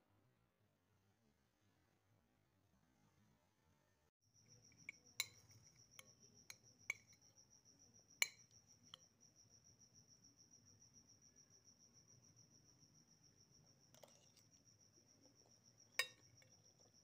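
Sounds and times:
metal spoon clinking on plate: 4.7 - 7.4, 8.2 - 9.0, 13.9 - 14.4, 16.0 - 16.5.

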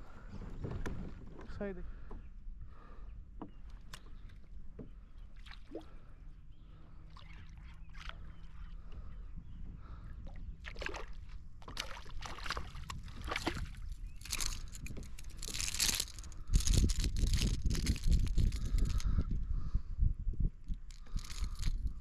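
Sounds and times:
fish splashing in water: 10.7 - 14.7.

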